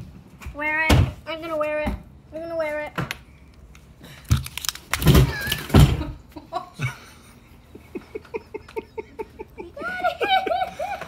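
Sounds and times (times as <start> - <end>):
person laughing: 5.3 - 11.0.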